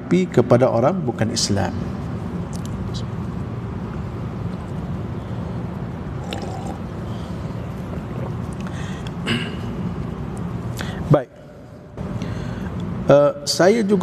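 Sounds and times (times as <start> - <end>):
steady low hum: 0.0 - 14.0
person sipping water: 6.2 - 6.9, 7.8 - 9.2.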